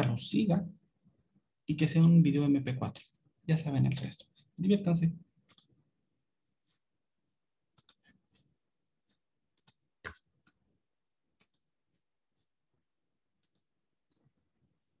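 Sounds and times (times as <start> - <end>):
computer mouse clicks: 5.5 - 5.8, 7.8 - 8.1, 9.6 - 10.3, 11.4 - 11.7, 13.4 - 13.8.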